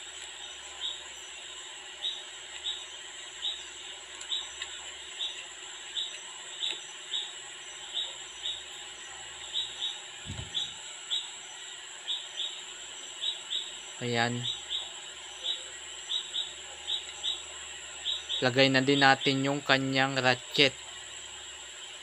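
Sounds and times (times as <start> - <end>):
small animal chirping: 4.3 - 19.4
soft low thump: 10.2 - 10.8.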